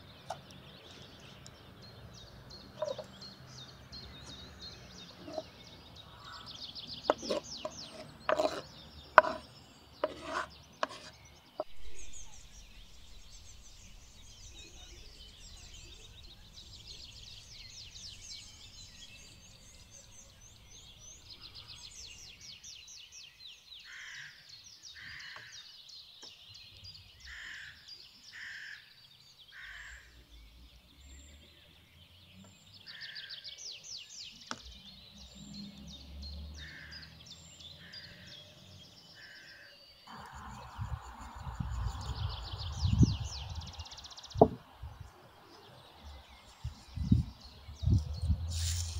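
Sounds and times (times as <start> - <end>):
harsh bird calls: 0.0 - 30.5, 32.5 - 48.9
small birds chirping: 0.0 - 48.9
knife knocking on chopping board: 44.4 - 44.6.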